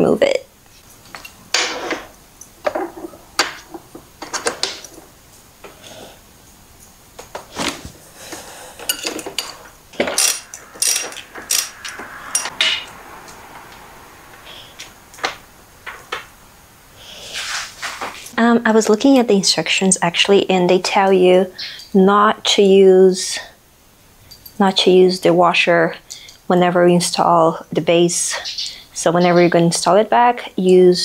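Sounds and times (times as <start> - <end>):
metal hand tools clicking: 8.9 - 12.5.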